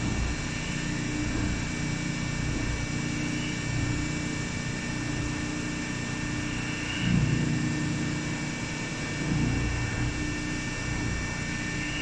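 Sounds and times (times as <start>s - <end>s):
baler machine hum with whine: 0.0s - 12.0s.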